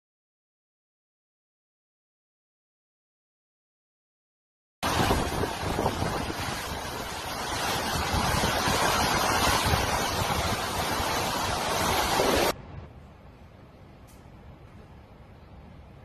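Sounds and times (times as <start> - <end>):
wind buffeting microphone: 4.8 - 12.9
wind and driving rain: 4.8 - 16.0.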